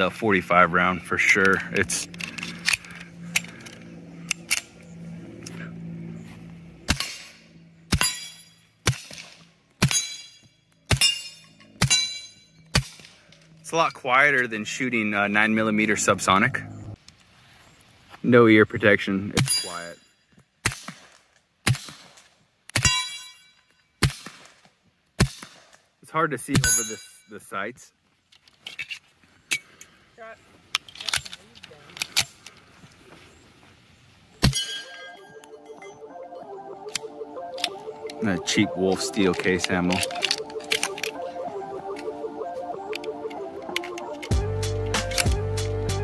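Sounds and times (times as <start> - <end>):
steel plate target ringing: 6.9 - 8.7, 9.8 - 12.6, 22.8 - 23.6, 34.4 - 35.4.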